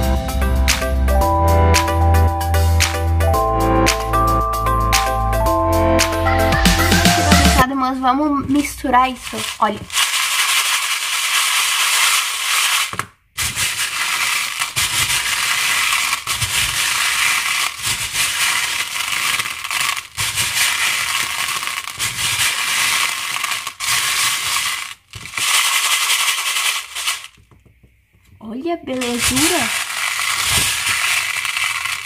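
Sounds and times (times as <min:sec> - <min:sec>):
plastic beads rattling in bowl: 0:08.6 - 0:27.5, 0:28.9 - 0:32.0.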